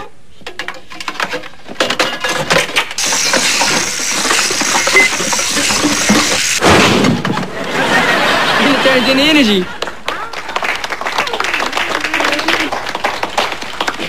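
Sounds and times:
steady hiss: 3.0s - 6.6s.

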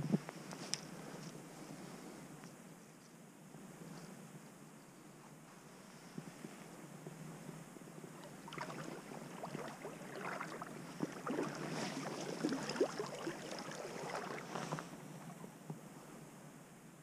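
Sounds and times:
wading through water splashing: 8.2s - 15.0s.

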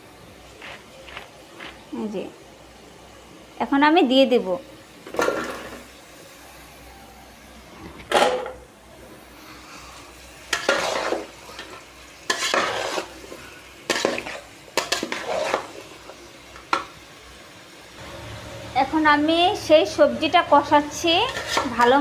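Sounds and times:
low sizzle: 0.0s - 22.0s
metal spoon scraping a pot: 10.5s - 15.8s, 21.2s - 22.0s.

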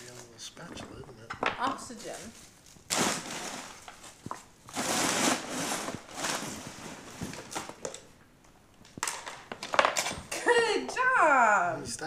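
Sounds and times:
rustling: 1.8s - 8.1s.

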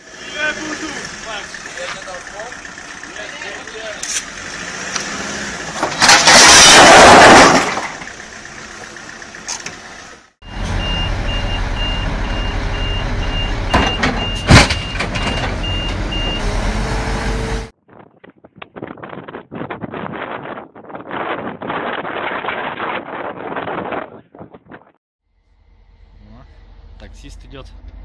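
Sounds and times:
truck diesel engine running: 0.3s - 4.8s, 8.0s - 14.9s, 25.3s - 28.0s
loud crashing rush: 5.6s - 8.1s
reversing alarm beeping: 10.4s - 16.6s.

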